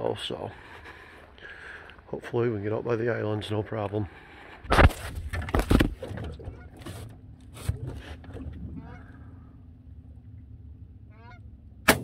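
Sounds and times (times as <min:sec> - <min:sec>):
low steady hum: 0:00.0 - 0:12.0
geese honking: 0:08.8 - 0:09.2, 0:11.1 - 0:11.5.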